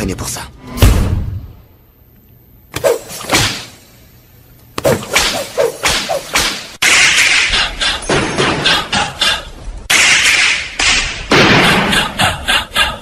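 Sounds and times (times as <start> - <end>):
whoosh and whip swishes: 2.8 - 3.7, 4.8 - 7.6.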